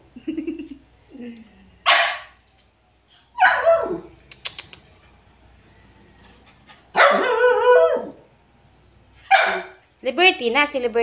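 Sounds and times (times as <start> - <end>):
dog bark-whine: 1.8 - 2.4, 3.4 - 4.1, 6.9 - 8.2, 9.2 - 9.8
dog barking: 1.8 - 2.4, 3.4 - 4.1, 6.9 - 8.2, 9.2 - 9.8
sharp clicks: 4.3 - 4.9.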